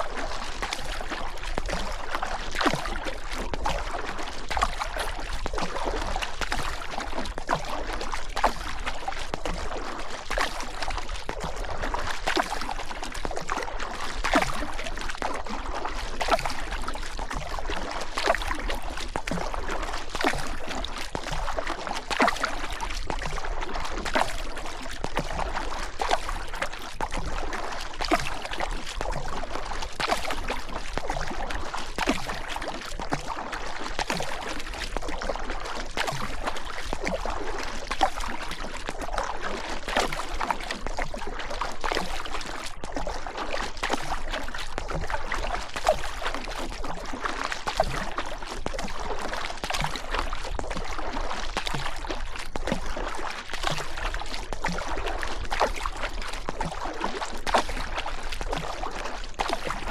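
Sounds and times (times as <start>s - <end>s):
paddle strokes splashing: 13.7s - 14.4s, 21.3s - 22.7s.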